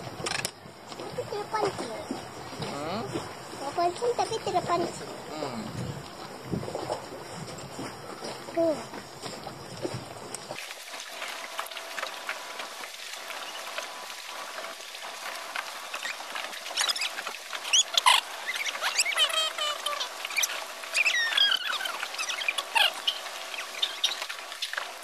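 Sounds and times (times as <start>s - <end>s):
small waves against wooden jetty: 0.0s - 25.0s
high squeaky chirps: 16.8s - 24.7s.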